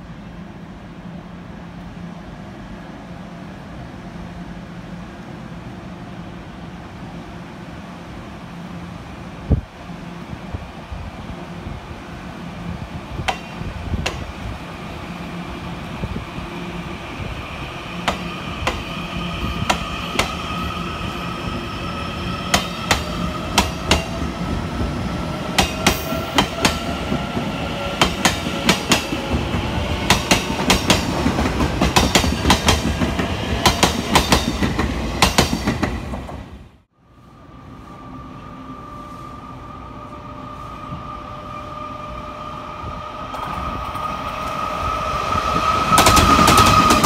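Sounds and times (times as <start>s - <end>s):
train whine rising in pitch: 14.2s - 31.9s, 37.0s - 47.0s.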